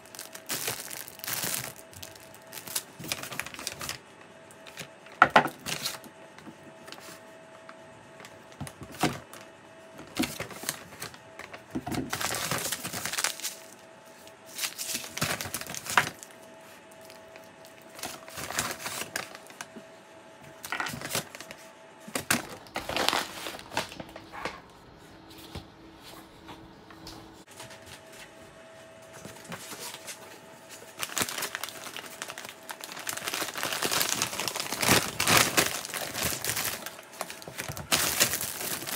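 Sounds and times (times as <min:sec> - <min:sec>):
paper bag rustling: 0:00.0 - 0:04.0, 0:05.5 - 0:06.0, 0:10.0 - 0:13.8, 0:14.4 - 0:19.7, 0:20.6 - 0:24.3, 0:29.2 - 0:38.9.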